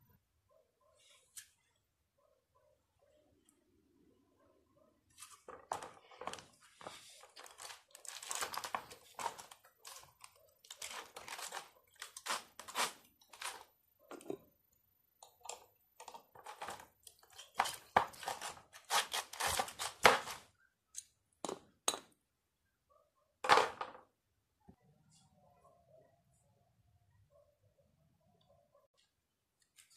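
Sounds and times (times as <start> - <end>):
metal fins crunching and tearing: 7.4 - 13.6.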